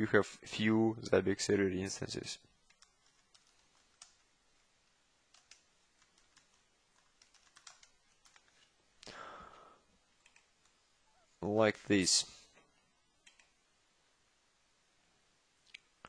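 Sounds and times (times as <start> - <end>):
soft hiss of noise: 0.1 - 16.0
keyboard typing: 2.6 - 8.7, 10.2 - 10.8, 13.2 - 13.6.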